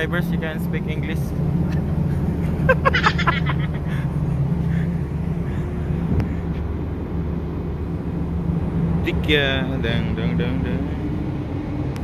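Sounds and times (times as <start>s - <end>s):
ship machinery hum: 0.0s - 12.0s
voice or laughter: 2.4s - 4.4s.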